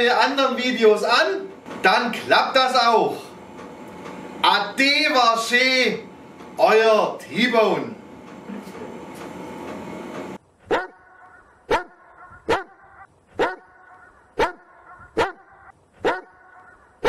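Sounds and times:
dog barking: 10.6 - 16.8.

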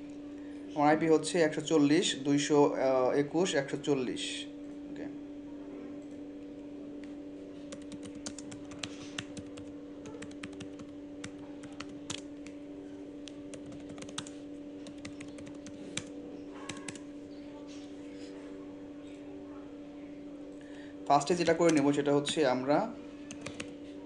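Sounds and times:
steady low hum: 0.0 - 24.0
keyboard keystroke clicks: 16.7 - 17.0, 23.3 - 23.7.

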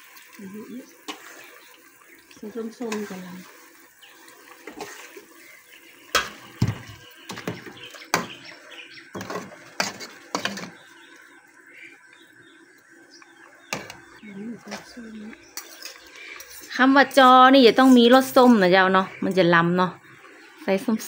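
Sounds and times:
metal ladle scraping metal pot: 4.5 - 5.5, 9.1 - 10.9, 15.5 - 18.7.

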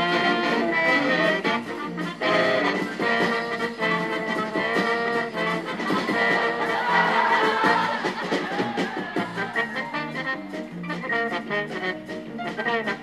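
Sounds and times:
circus band swing music: 0.0 - 13.0.

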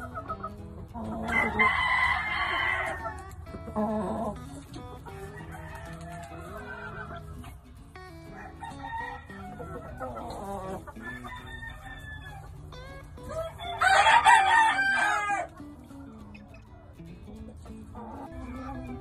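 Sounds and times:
rooster crowing: 1.2 - 3.2, 5.1 - 7.3, 8.2 - 12.6, 13.3 - 15.6.

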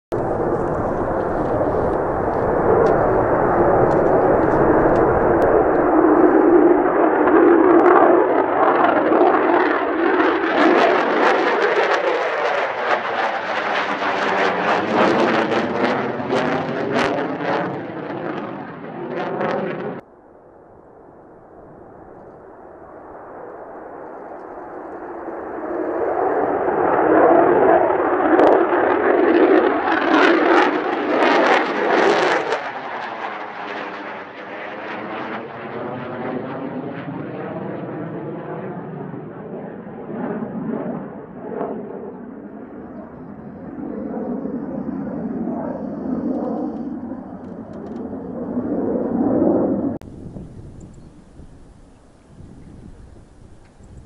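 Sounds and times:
wind buffeting microphone: 0.1 - 8.1, 43.1 - 54.0
jet engine roar: 0.1 - 54.0.

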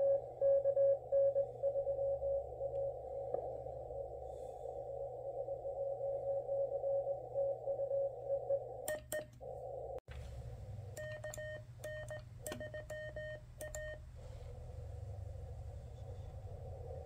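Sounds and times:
morse code beeps: 0.0 - 3.0, 11.0 - 14.0
morse sidetone with key clicks: 8.9 - 9.4, 11.0 - 14.0.

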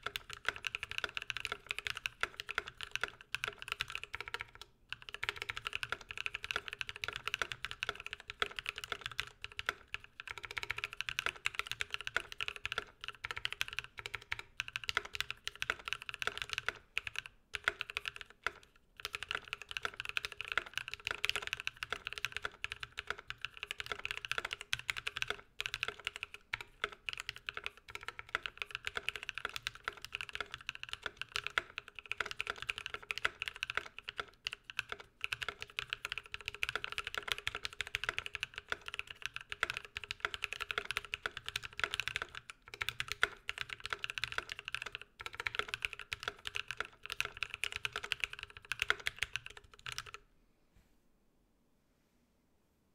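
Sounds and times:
fast typing on mechanical keyboard: 0.0 - 50.2.

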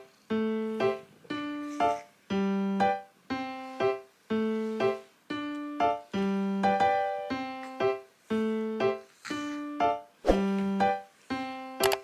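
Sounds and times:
slow piano melody: 0.0 - 12.0.

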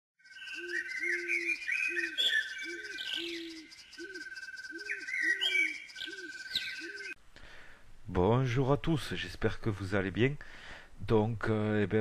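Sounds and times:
songbirds chirping: 0.2 - 7.2
low hooting call: 0.5 - 7.2
pulsing insect-like trill: 2.4 - 7.1.

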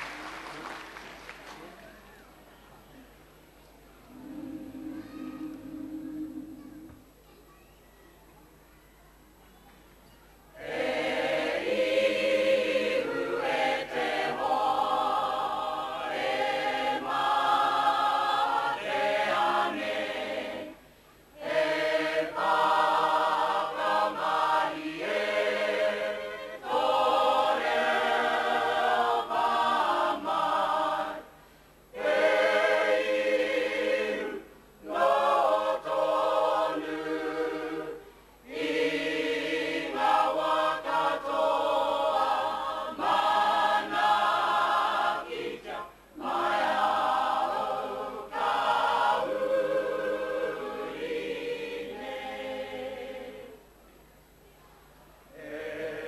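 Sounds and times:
men and women singing together: 10.6 - 20.8, 21.4 - 31.3, 32.0 - 53.6.

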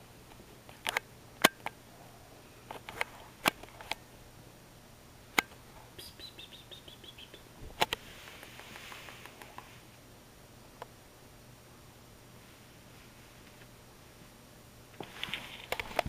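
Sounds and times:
cat chirping: 6.0 - 7.5.

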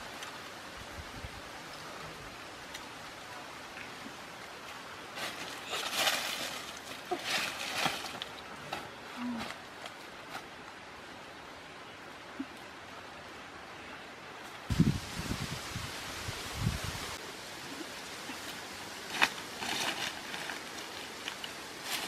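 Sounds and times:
steady outdoor hiss: 0.0 - 22.0
dry leaves rustling: 4.5 - 10.7, 14.4 - 22.0.

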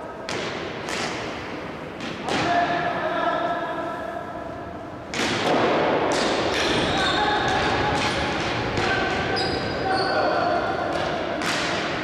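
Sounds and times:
hockey stick hitting ball: 0.3 - 1.3, 5.1 - 6.9, 10.9 - 12.0.

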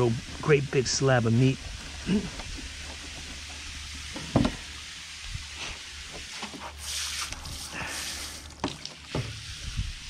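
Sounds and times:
rustling hiss: 0.0 - 10.0.

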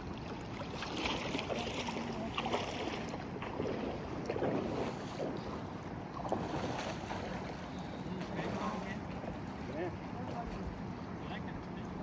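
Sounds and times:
wind buffeting microphone: 1.6 - 9.5.

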